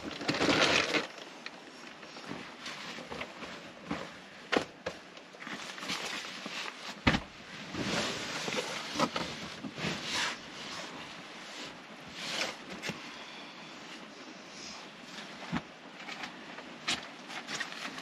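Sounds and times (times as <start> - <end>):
bedding rustling: 0.0 - 13.1.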